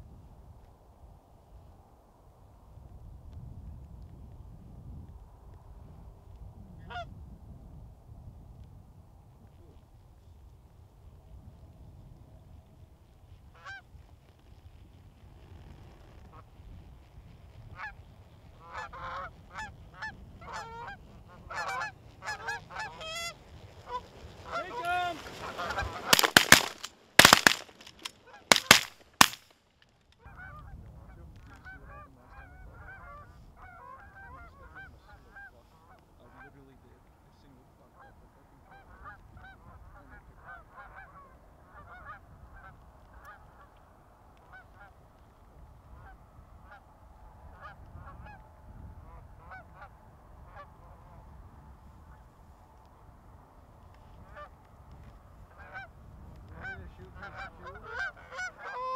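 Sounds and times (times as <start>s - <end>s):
geese honking: 18.6s - 29.4s, 55.5s - 55.9s, 56.6s - 58.9s
shotgun blasts: 26.0s - 29.5s.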